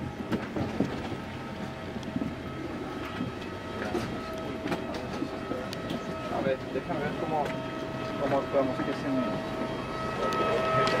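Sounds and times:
thin constant high tone: 2.4 - 11.0.

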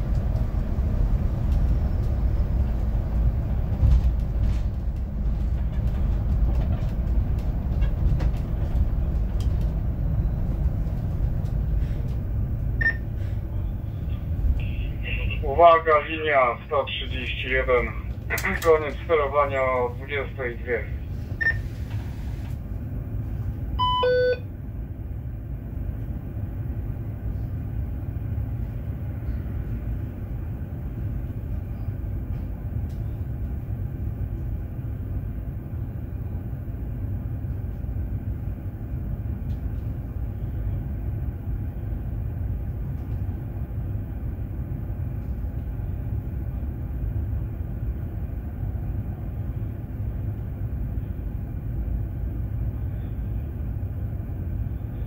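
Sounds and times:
bus interior rumble: 0.0 - 55.0
short electronic beep: 23.8 - 24.4.

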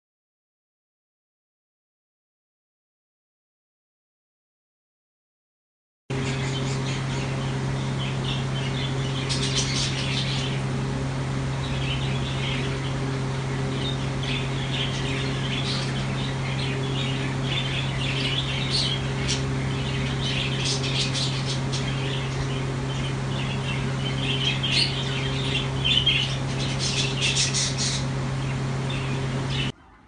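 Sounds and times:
budgerigars chattering: 6.1 - 10.8, 11.5 - 29.7
steady low hum: 6.1 - 30.0.

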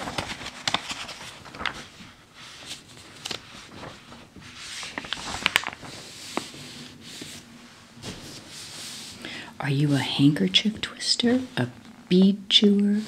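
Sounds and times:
magazine pages rustling: 0.0 - 9.2.

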